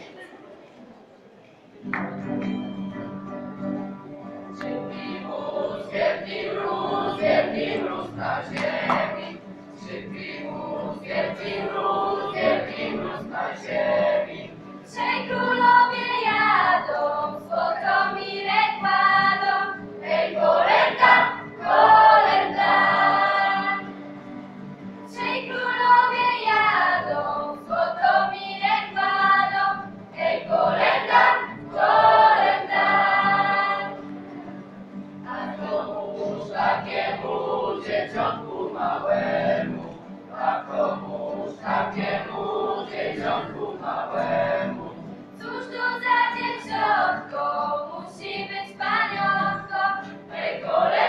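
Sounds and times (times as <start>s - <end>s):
acoustic guitar: 1.8s - 51.0s
children singing a carol: 4.7s - 24.1s, 25.1s - 34.2s, 35.2s - 51.0s.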